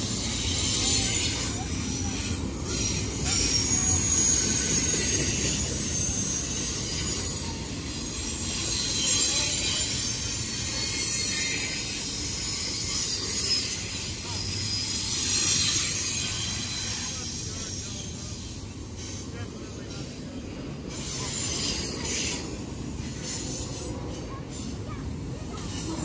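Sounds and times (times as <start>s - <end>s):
high-pitched wheel squeal: 0.0s - 17.3s
train wheels rumbling on rail: 0.0s - 26.0s.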